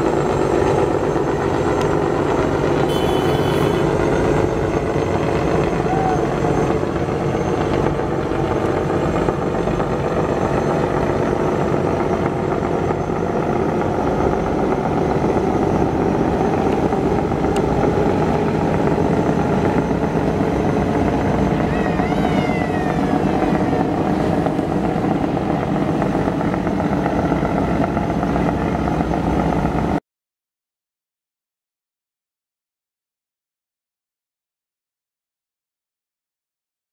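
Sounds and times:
boat engines droning: 0.0s - 30.0s
water noise: 13.5s - 29.9s.

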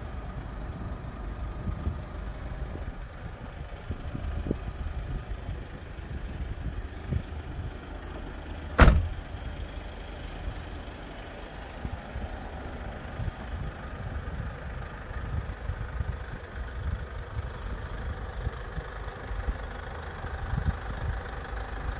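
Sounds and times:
diesel engine idling: 0.0s - 21.9s
van door shutting: 8.7s - 9.2s.

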